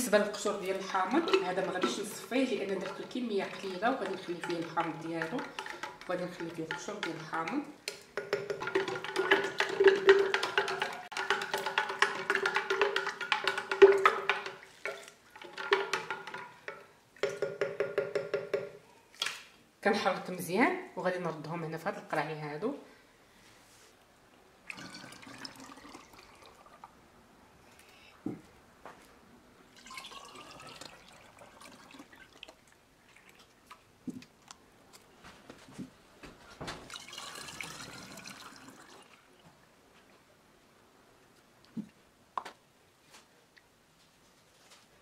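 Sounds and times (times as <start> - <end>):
liquid pouring into a bottle: 24.7 - 27.0, 29.7 - 33.9, 36.9 - 39.3.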